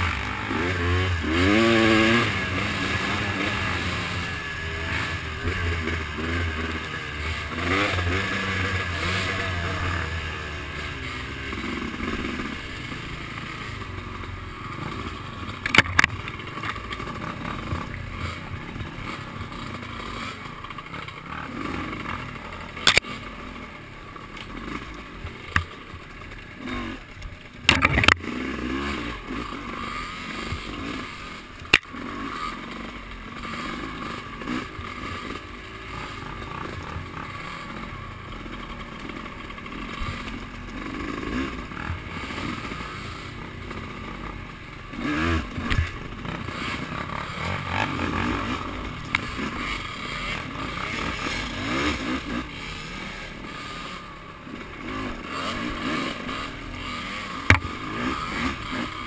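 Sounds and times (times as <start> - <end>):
off-road vehicle engine revving: 0.0 - 59.0.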